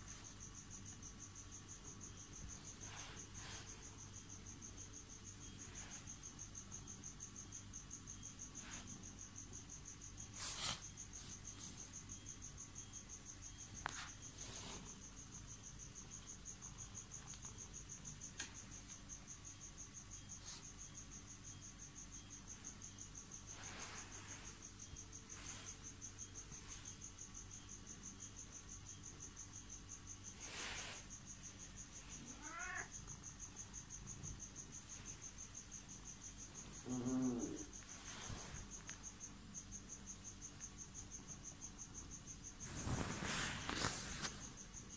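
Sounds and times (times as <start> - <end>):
insect trilling: 31.9 - 34.7, 35.8 - 38.8
short rustles: 42.6 - 44.6.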